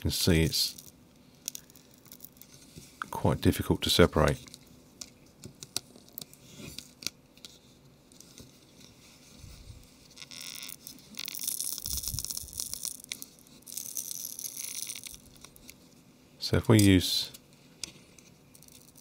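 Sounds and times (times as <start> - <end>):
adhesive crackling and tearing: 9.9 - 15.8.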